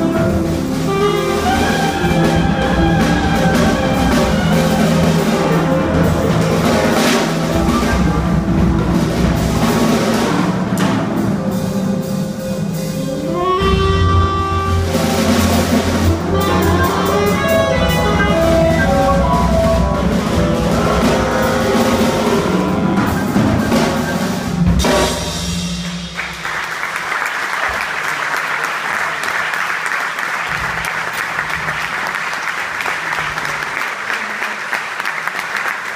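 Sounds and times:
tenor saxophone: 0.0 - 8.8, 12.4 - 24.0
double bass: 0.0 - 26.6
drum kit with busy cymbals: 0.0 - 26.9
piano: 0.0 - 35.9
audience applause: 25.8 - 35.9.

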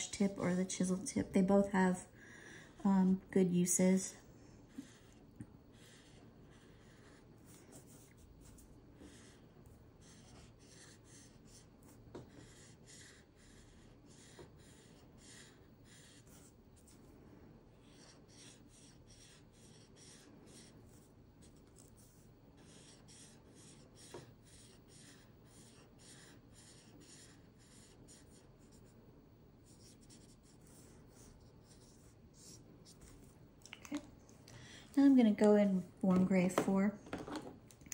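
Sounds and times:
marker scratching on paper: 4.7 - 17.0, 17.7 - 29.0, 29.6 - 33.3.

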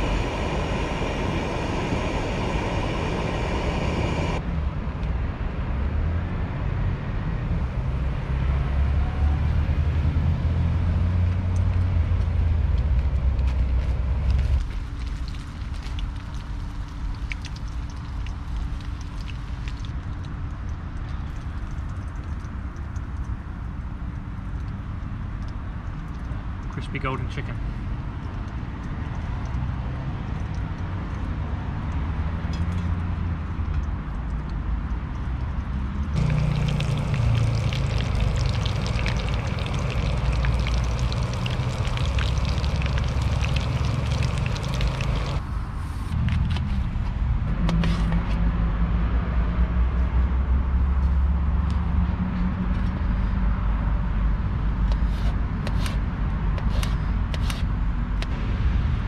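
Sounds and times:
chicken deep-frying in oil: 0.0 - 4.4, 9.1 - 45.4
road traffic rumble: 0.0 - 59.0.

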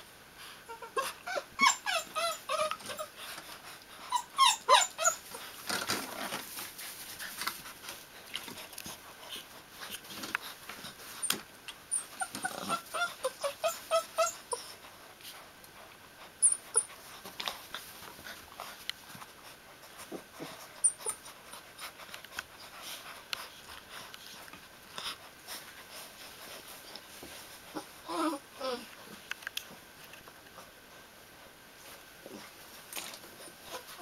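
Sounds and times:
puppies whimpering: 0.7 - 3.2, 4.0 - 5.5, 11.9 - 14.8, 20.4 - 21.4, 27.7 - 28.9.

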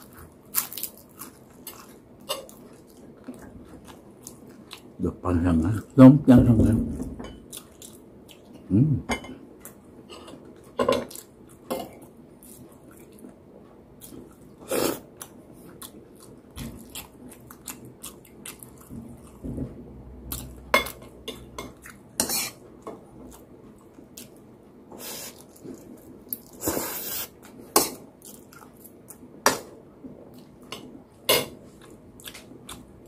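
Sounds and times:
chewing: 14.0 - 19.4.

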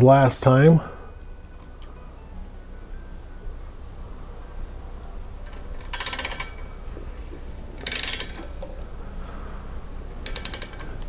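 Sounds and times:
socket ratchet clicking: 5.5 - 6.6, 7.8 - 8.7, 10.2 - 11.0.

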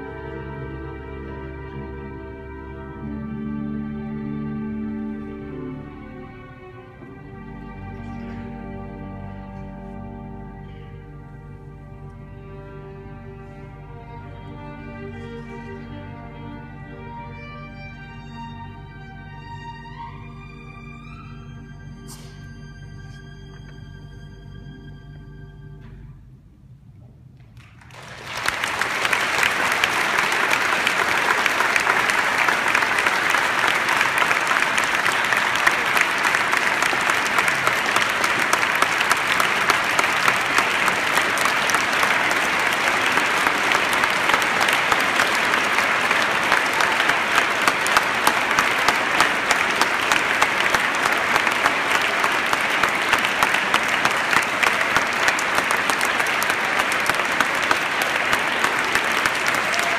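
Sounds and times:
large audience applauding: 27.6 - 59.9.

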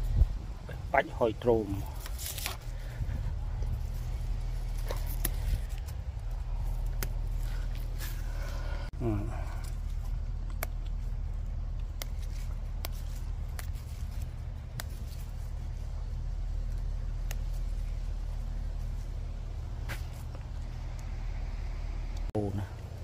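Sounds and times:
steady low hum: 0.0 - 23.0
plant stems snapping: 1.9 - 3.0, 3.6 - 8.6, 9.5 - 18.8.

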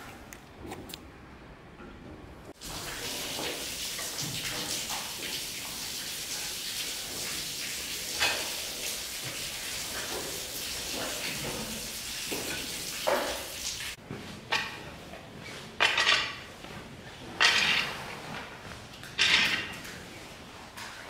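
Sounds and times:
rain hissing: 2.6 - 14.0.

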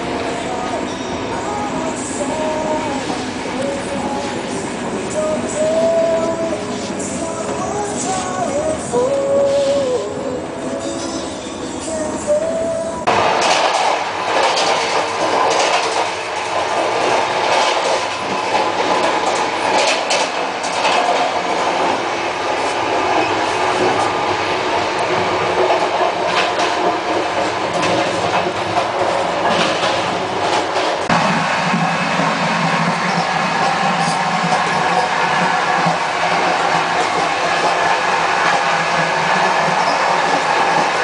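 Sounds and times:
train wheels rumbling on track: 0.0 - 41.0
knocks and rattles: 13.4 - 16.2.

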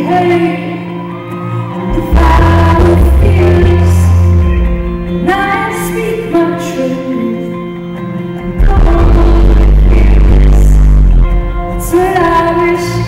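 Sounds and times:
woman singing: 0.0 - 7.8, 8.4 - 10.8, 11.7 - 13.0
acoustic guitar: 0.0 - 13.0
band playing live pop: 0.0 - 13.0.

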